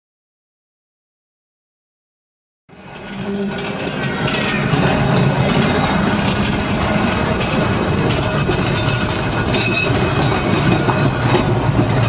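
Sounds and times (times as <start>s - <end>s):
tram wheels rumbling on track: 2.7s - 12.0s.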